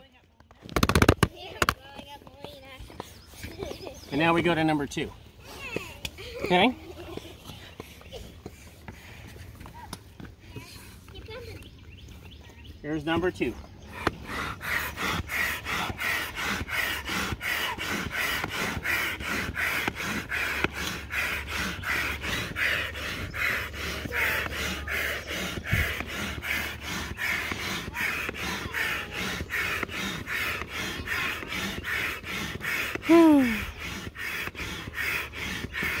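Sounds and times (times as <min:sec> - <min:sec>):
hand air pump whooshing: 0:00.6 - 0:01.8, 0:13.8 - 0:36.0.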